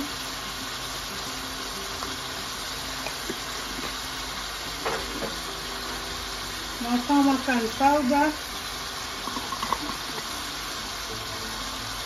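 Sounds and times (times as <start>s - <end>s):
sauce simmering in a pot: 0.0s - 12.0s.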